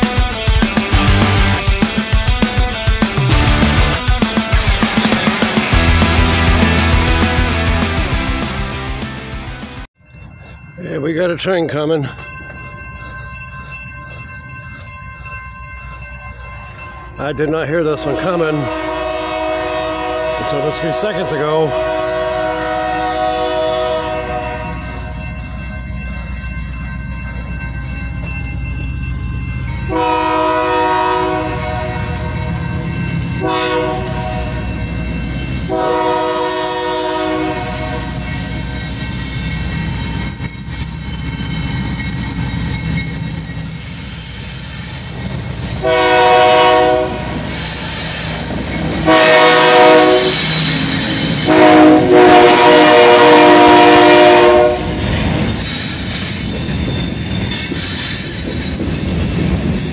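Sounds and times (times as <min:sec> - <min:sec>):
locomotive engines rumbling: 0:00.0 - 0:59.9
locomotive air horn blasts: 0:18.6 - 0:24.8, 0:29.9 - 0:32.4, 0:33.4 - 0:34.7, 0:35.7 - 0:38.2, 0:45.8 - 0:47.4, 0:49.0 - 0:50.4, 0:51.3 - 0:55.0
train wheels rolling: 0:22.5 - 0:59.9.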